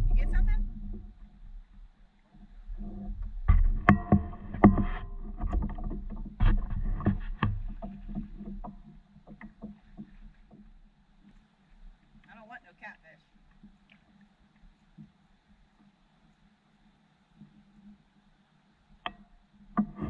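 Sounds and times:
knocks and thumps on paddleboard: 0.0s - 1.7s, 2.8s - 11.4s, 19.0s - 20.0s.

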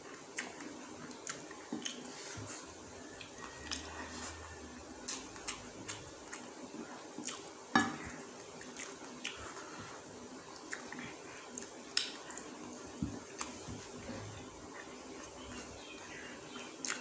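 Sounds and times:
wet chewing: 0.0s - 7.5s, 10.5s - 14.0s, 16.5s - 17.0s.

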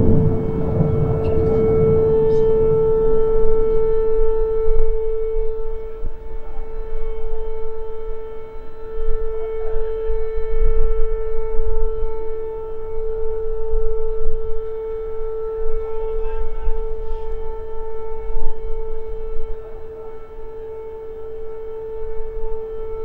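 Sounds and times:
low rumble: 0.0s - 8.3s
air raid siren steady tone: 0.0s - 23.0s.

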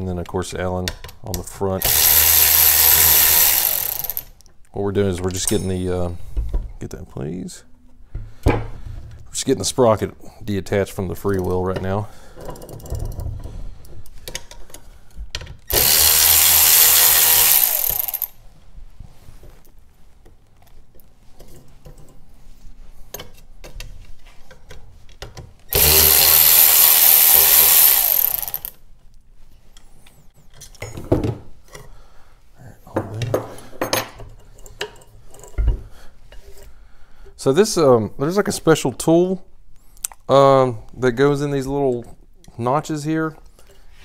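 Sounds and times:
power driver spinning bolts: 1.8s - 4.3s, 15.7s - 18.4s, 25.7s - 28.8s
tools clinking and knocking: 5.2s - 6.8s, 11.3s - 16.5s.

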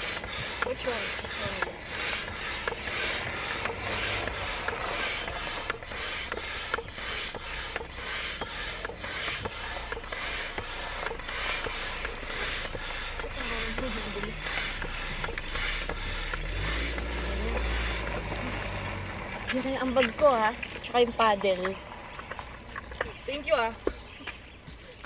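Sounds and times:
air pump hissing strokes: 0.0s - 18.6s.

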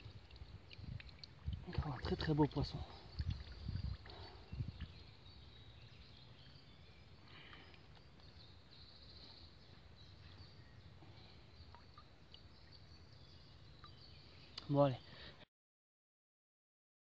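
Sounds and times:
faint bird chirps: 2.2s - 15.4s.

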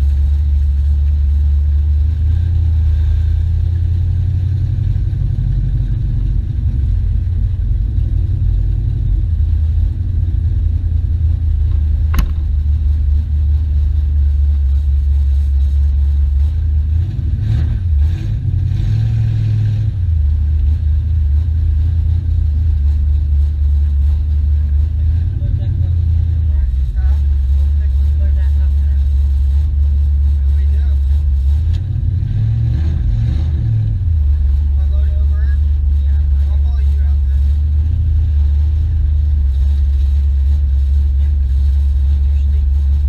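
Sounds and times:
car engine rumbling: 0.0s - 43.0s
sharp click: 12.1s - 12.5s.

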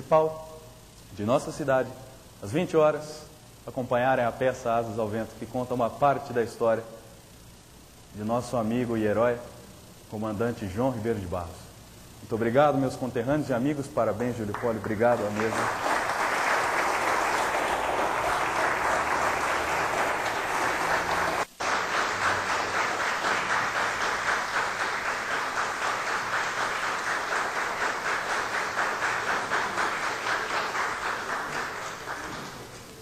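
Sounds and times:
audience applauding: 14.2s - 33.0s.

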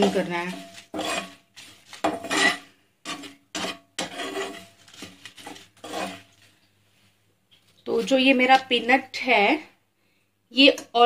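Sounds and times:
metal spoon scraping a pan: 0.0s - 6.6s.

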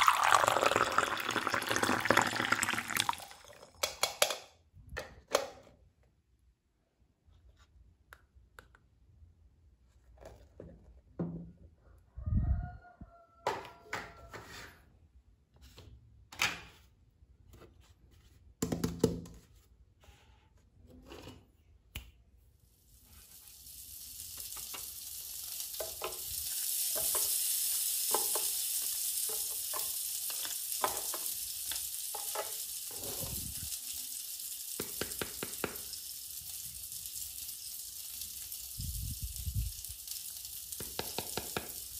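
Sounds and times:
toy grill sizzling hiss: 22.6s - 41.9s.

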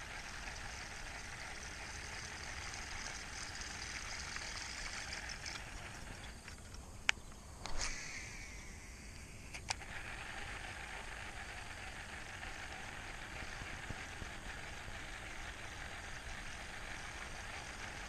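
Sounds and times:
steady high hiss: 0.0s - 18.0s
fishing reel clicks: 0.2s - 6.6s.

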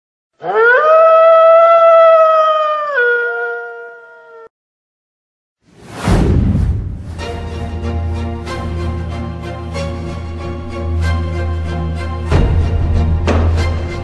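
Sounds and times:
wolf howling: 0.4s - 4.5s
whoosh with deep rumble: 5.7s - 8.4s.

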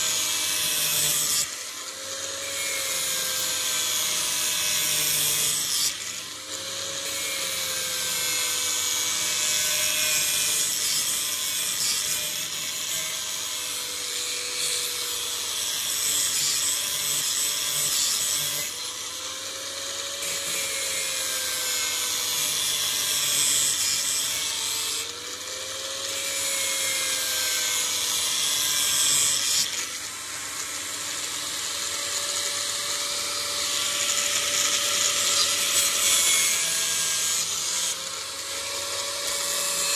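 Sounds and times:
grinder motor whine: 16.5s - 39.9s.

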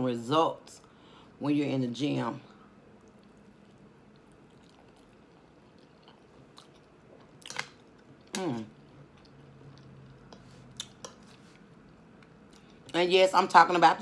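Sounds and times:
person chewing food: 2.8s - 13.0s.

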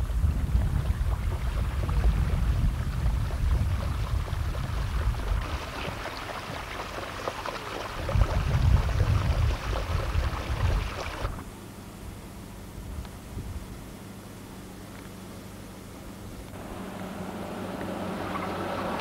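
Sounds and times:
wind buffeting microphone: 0.0s - 6.6s, 7.9s - 11.4s.

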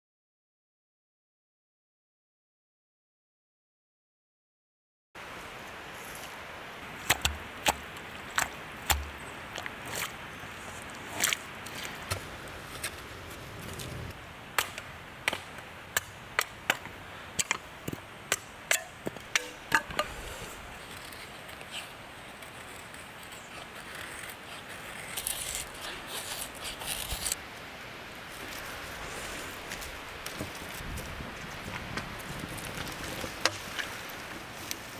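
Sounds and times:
fire crackling: 9.9s - 27.4s, 28.2s - 34.9s.

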